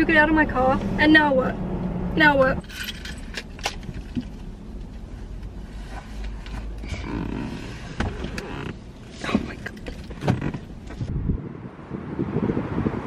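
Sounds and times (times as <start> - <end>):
car seat creaking and rustling: 2.8 - 11.3.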